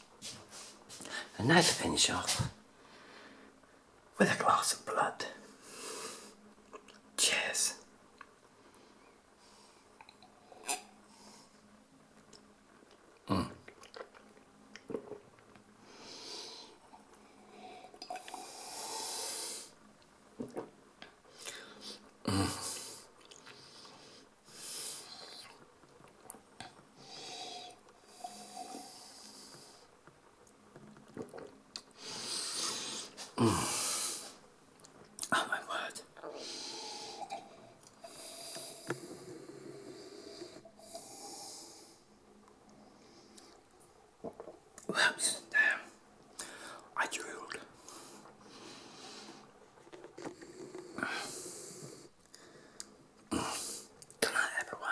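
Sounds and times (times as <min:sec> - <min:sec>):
man breathing through nose: 0:15.8 - 0:19.8, 0:21.3 - 0:25.5, 0:27.0 - 0:29.9, 0:32.0 - 0:34.4, 0:36.3 - 0:42.1, 0:46.4 - 0:46.9, 0:50.2 - 0:53.9
man sipping and slurping wine: 0:16.9 - 0:18.6, 0:36.4 - 0:39.6
breathing through the nose: 0:32.0 - 0:34.4, 0:50.3 - 0:53.9.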